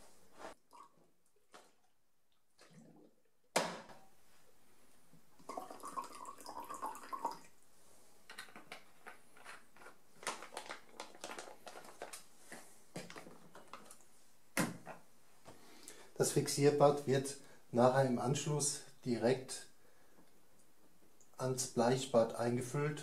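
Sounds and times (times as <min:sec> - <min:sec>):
foil bag crinkling: 0:09.4 - 0:14.0.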